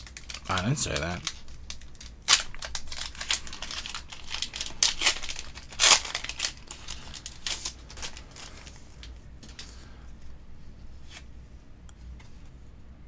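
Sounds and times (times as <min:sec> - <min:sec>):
foil wrapper tearing and crinkling: 0:00.0 - 0:09.1.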